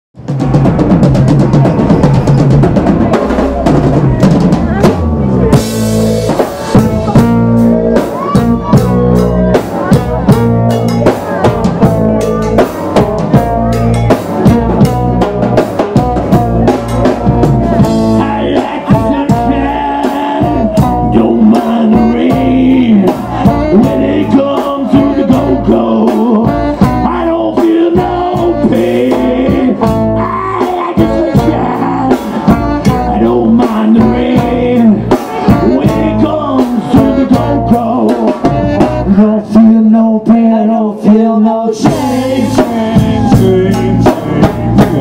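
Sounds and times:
fast drum hits: 0:00.2 - 0:30.1, 0:41.8 - 0:45.0
trombone lead line: 0:00.2 - 0:40.0, 0:41.7 - 0:45.0
live band playing: 0:00.2 - 0:45.0.

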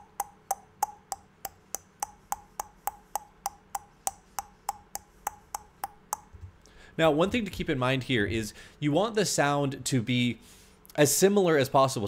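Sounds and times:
person making mouth clicks: 0:00.0 - 0:06.4.

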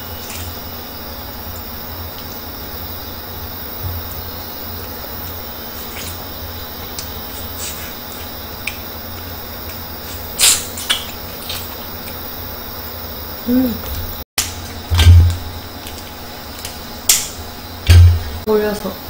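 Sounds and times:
steady low hum: 0:00.0 - 0:19.0
person humming: 0:13.4 - 0:14.0.

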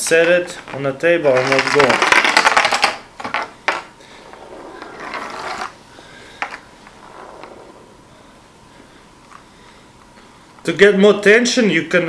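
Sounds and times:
soft scraping: 0:03.8 - 0:09.6.

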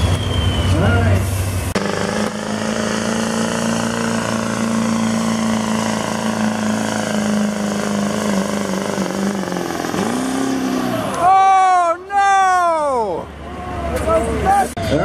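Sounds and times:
tractor engine running: 0:00.0 - 0:11.3.

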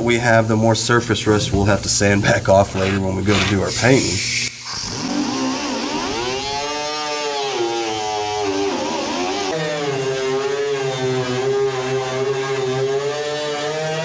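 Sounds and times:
angle grinder grinding metal: 0:02.2 - 0:13.1.

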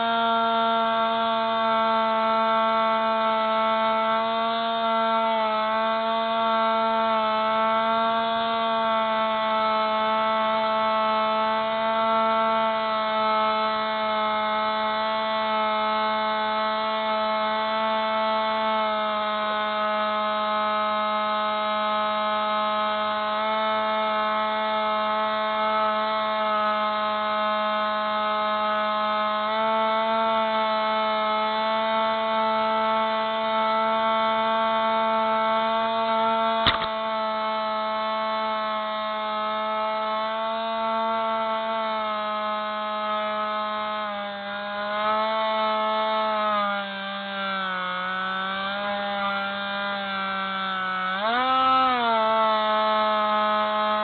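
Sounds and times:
model plane motor buzzing whine: 0:00.0 - 0:54.0.

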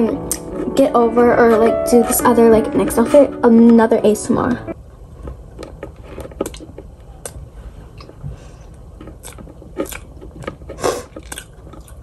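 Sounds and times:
person chewing crunchy cookie: 0:05.6 - 0:12.0.

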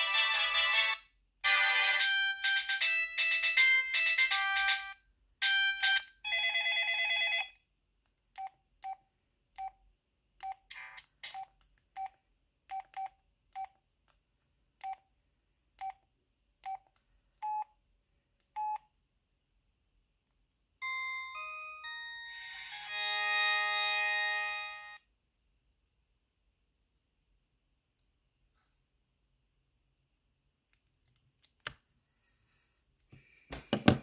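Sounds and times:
polyphonic ringtone melody: 0:00.0 - 0:06.6, 0:20.8 - 0:25.0.

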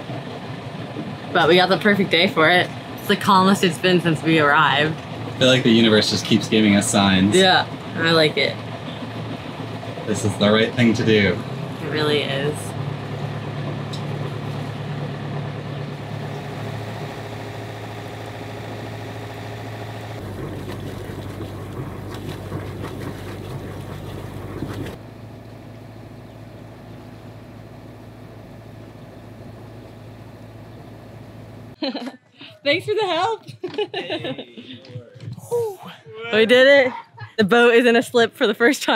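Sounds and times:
boat engine running: 0:00.0 - 0:31.8, 0:32.6 - 0:35.5, 0:36.3 - 0:38.9
water rushing and splashing: 0:16.1 - 0:25.0.

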